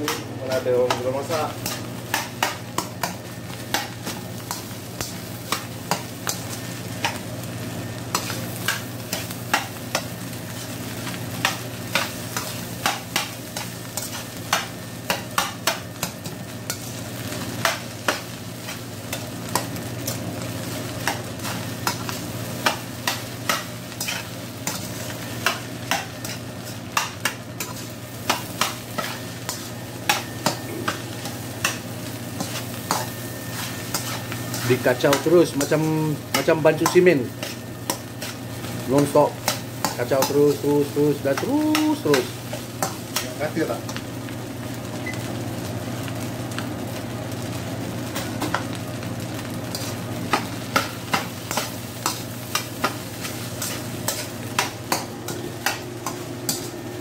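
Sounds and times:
food sizzling: 0:00.0 - 0:57.0
metal spatula scraping wok: 0:24.0 - 0:25.0.

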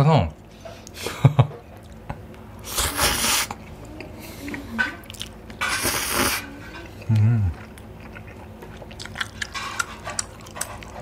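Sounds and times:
man slurping noodles: 0:05.6 - 0:06.4.

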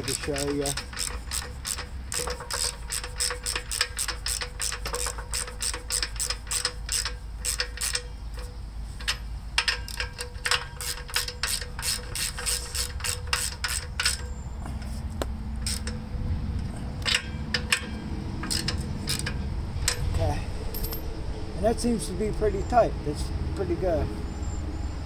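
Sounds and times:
ratchet wrench clicking: 0:00.0 - 0:14.4, 0:15.6 - 0:16.0, 0:17.0 - 0:20.2.

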